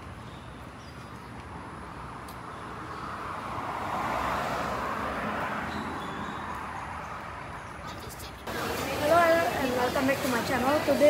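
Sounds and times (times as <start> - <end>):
vehicle passing by: 2.7 - 7.8.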